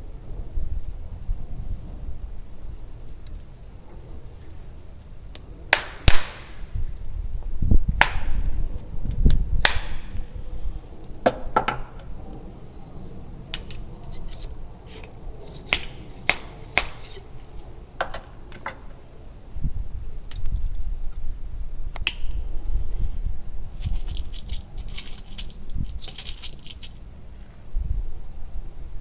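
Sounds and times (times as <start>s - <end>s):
sharp cracks and knocks: 5.7s - 6.6s, 8.0s - 8.6s, 9.2s - 10.2s, 15.6s - 17.2s.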